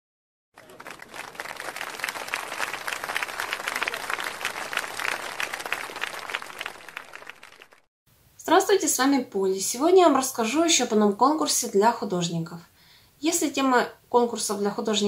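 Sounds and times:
crowd applause: 0.6 - 7.9.

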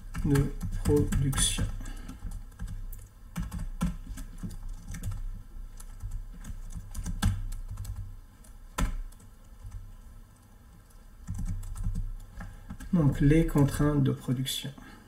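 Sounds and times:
typing on computer keyboard: 0.0 - 13.8
loud keystrokes: 5.8 - 8.0.

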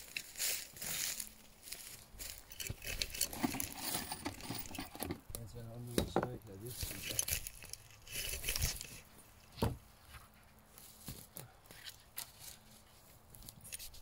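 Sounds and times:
wood rustling: 0.0 - 14.0.

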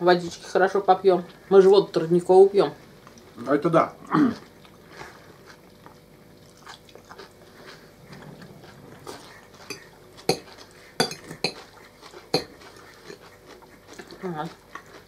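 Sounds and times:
forks clinking on plates: 9.7 - 11.6.

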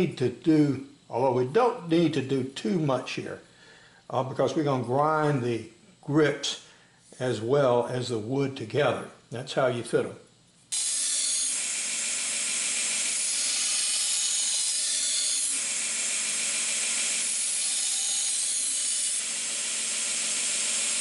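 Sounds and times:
belt grinder grinding steel: 10.7 - 21.0.

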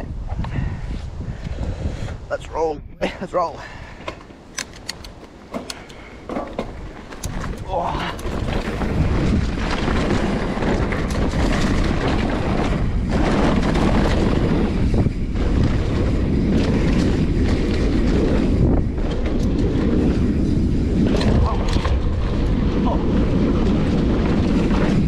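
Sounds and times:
wind buffeting microphone: 0.0 - 25.0
bike knocking and rattling: 4.0 - 25.0
tyres rolling over dirt: 5.2 - 25.0.

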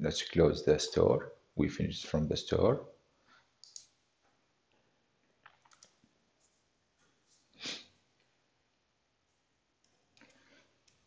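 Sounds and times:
mouse clicks: 3.6 - 4.0.

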